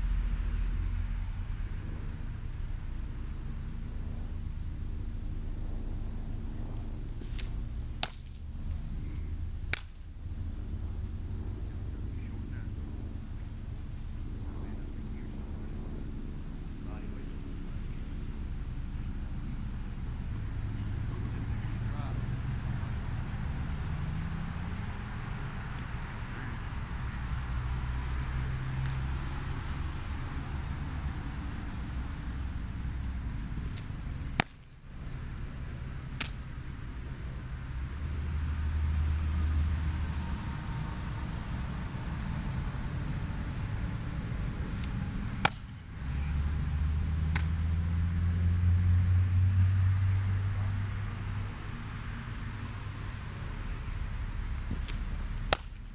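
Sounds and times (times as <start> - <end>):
high-pitched insect chorus: 0.0 - 55.9
sharp smacks: 7.2 - 8.4, 9.7 - 10.0, 33.7 - 34.7, 36.1 - 36.5, 44.8 - 45.8, 47.3 - 47.6, 54.7 - 55.9.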